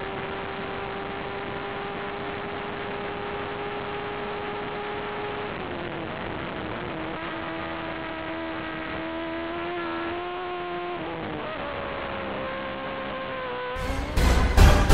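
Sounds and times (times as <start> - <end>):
race car engine at high revs: 0.0 - 14.9.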